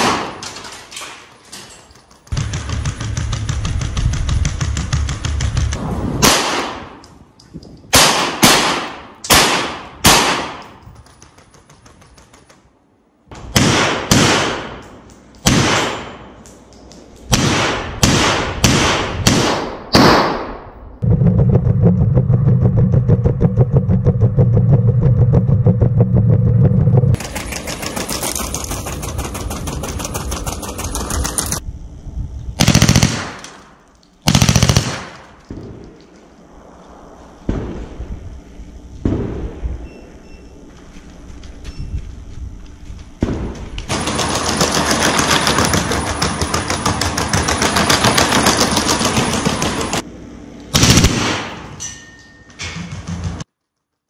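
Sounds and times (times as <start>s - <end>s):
machine gun shots echoing: 0.0s - 0.5s, 7.9s - 10.8s, 15.4s - 16.3s, 32.6s - 36.0s, 43.2s - 50.0s, 50.7s - 51.7s
loud steady sound: 17.3s - 28.0s.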